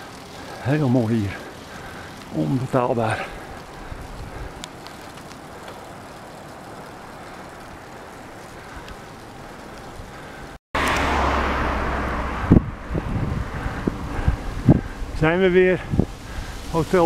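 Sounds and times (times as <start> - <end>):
faint outdoor background noise: 0.0 - 17.0
wind rush over microphone: 3.4 - 4.6, 12.0 - 17.0
low buffeting thumps: 12.0 - 15.2.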